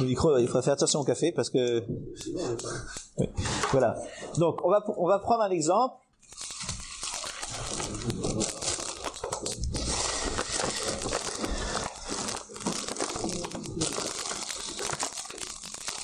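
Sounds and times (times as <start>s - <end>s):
microphone handling crackle: 7.5s - 15.4s.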